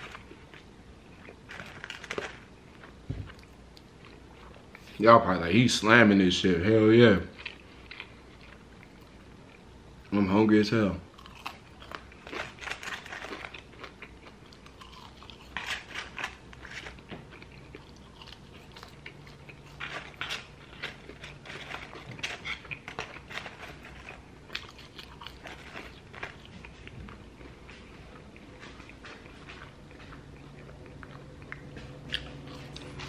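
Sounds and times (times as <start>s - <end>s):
person chewing food: 0.0s - 5.0s, 7.3s - 10.1s, 11.1s - 33.0s.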